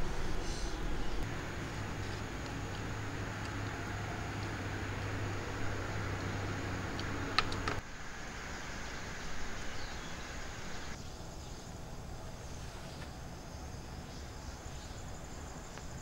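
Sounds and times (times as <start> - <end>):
low hum: 0.0 - 12.8
outdoor ambient noise: 0.0 - 16.0.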